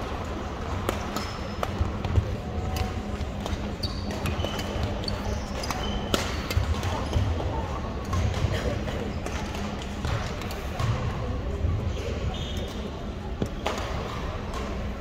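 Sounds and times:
low hum of sports hall: 0.0 - 15.0
sneaker squeaks on floor: 3.5 - 7.3, 11.9 - 12.9.

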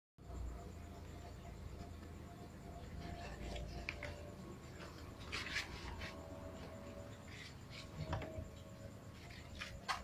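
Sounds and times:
scratching and rustling: 2.9 - 10.0.

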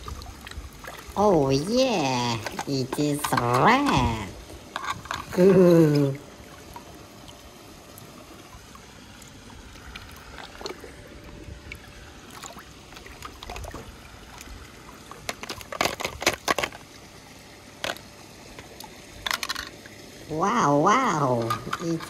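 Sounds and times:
sharp splashes and knocks: 12.3 - 16.9.

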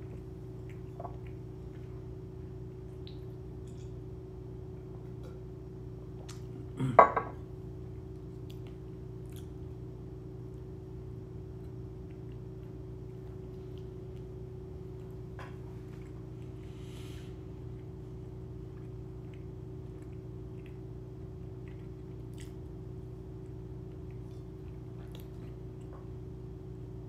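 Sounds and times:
steady low hum: 0.0 - 27.0
glass set down on counter: 7.0 - 7.4.

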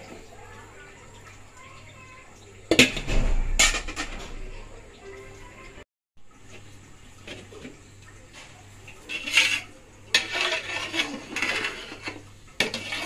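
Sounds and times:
metal spatula scraping a pot: 8.9 - 13.0.

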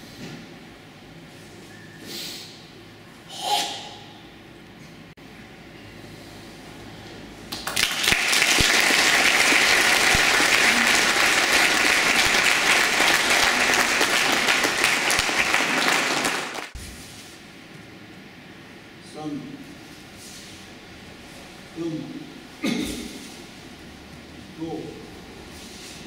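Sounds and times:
audience applauding: 7.5 - 16.8.

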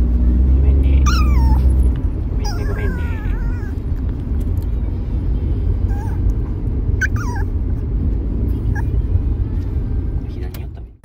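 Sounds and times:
car cabin low rumble: 0.0 - 11.0
small dog whimpering: 1.0 - 1.7, 2.4 - 3.8, 5.9 - 6.2, 7.0 - 7.5.

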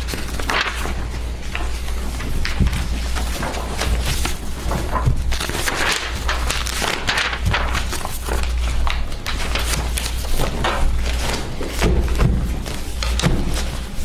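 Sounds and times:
low electrical hum: 0.0 - 14.0
paper rustling: 0.0 - 14.0.

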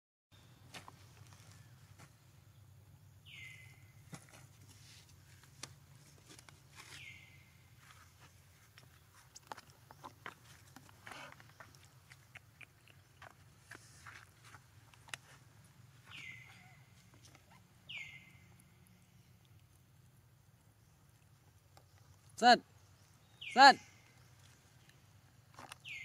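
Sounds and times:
bird whistled call: 17.9 - 18.3.

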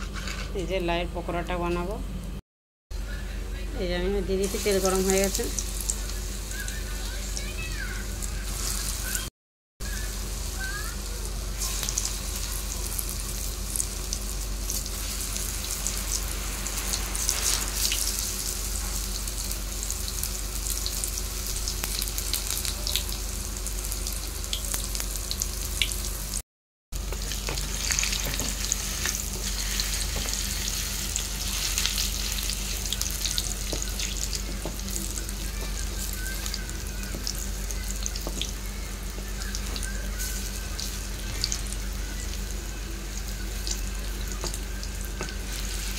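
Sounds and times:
batter deep-frying in oil: 3.8 - 26.4, 27.0 - 45.9.

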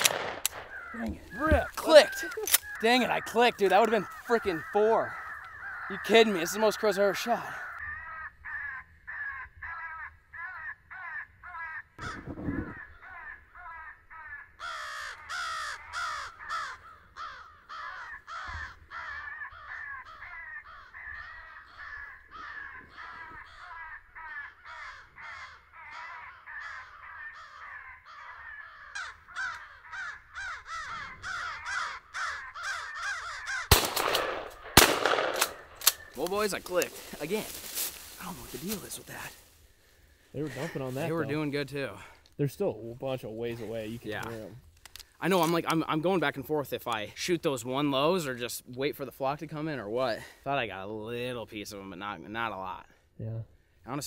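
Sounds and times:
crows cawing: 0.0 - 42.3.

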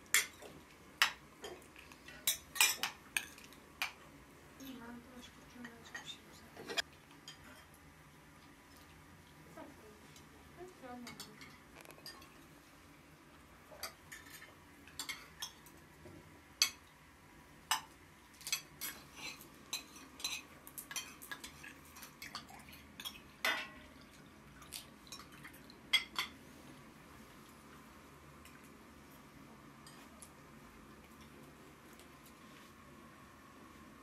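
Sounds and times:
cutlery clinking on dishes: 0.1 - 4.0, 17.7 - 23.9.

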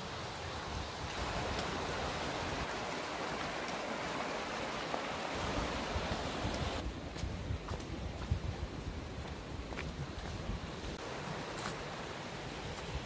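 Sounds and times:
stream rushing over rocks: 0.0 - 13.0
wind rumble on microphone: 5.3 - 11.0.

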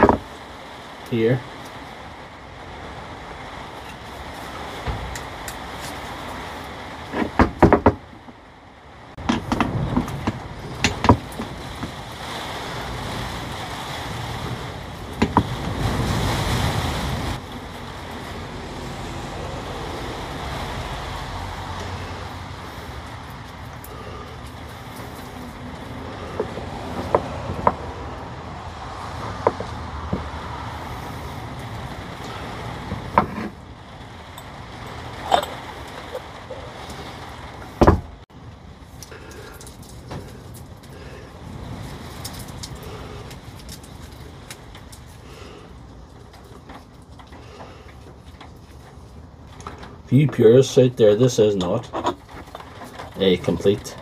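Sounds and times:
steady low rumble: 8.0 - 50.4.

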